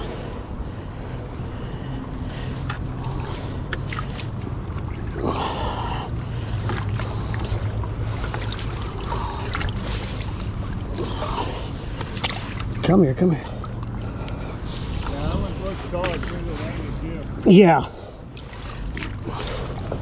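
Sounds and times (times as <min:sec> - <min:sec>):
running river water: 0:00.0 - 0:20.0
water splashing and dripping: 0:02.3 - 0:13.9, 0:18.3 - 0:20.0.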